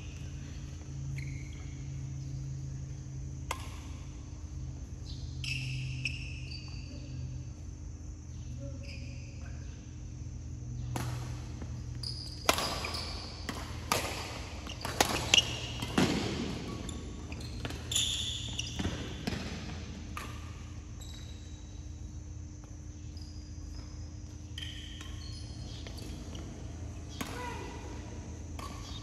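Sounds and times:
shoes squeaking on court: 0.0 - 3.1, 5.0 - 7.4, 8.3 - 9.4, 10.8 - 29.0
low hall hum: 0.0 - 29.0
racket hitting shuttlecock: 10.8 - 17.9, 18.7 - 20.6, 27.1 - 29.0.

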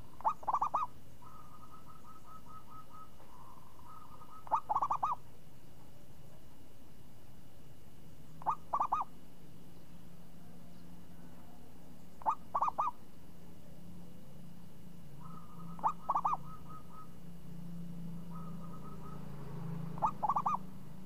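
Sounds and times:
dove cooing: 0.0 - 5.3, 8.4 - 9.1, 12.2 - 13.0, 15.2 - 17.3, 18.2 - 20.8.

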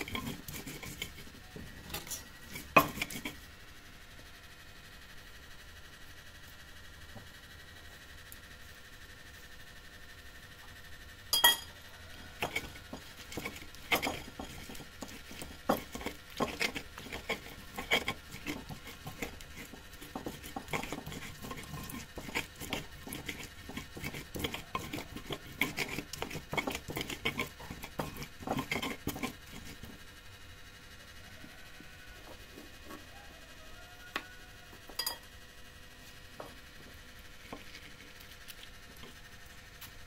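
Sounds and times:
sharp ringing clink: 11.4 - 11.7, 35.0 - 35.2
cutlery and dishes clinking: 35.0 - 35.2.

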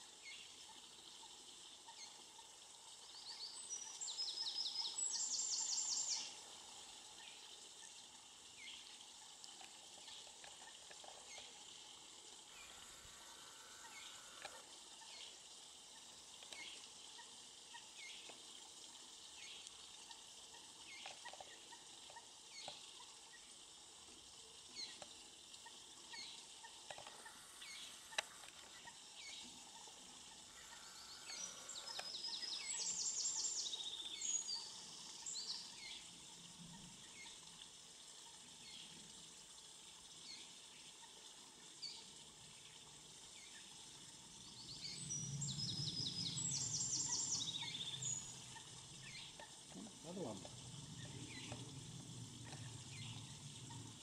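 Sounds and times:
rapid high birdsong: 27.1 - 36.0, 44.5 - 51.7
bird chicks peeping: 30.5 - 33.8.

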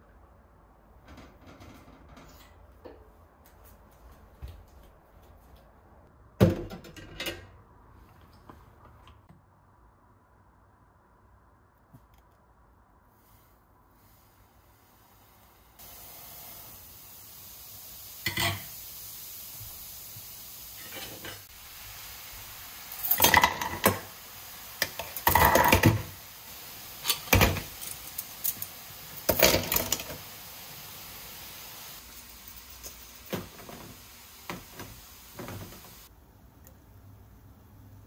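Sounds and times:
metal utensils clattering: 29.3 - 30.2.

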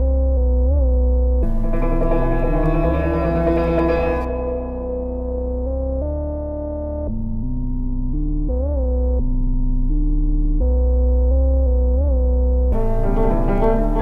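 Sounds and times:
deep bass: 0.0 - 14.0
synthesizer held notes: 1.4 - 6.3, 12.8 - 14.0.

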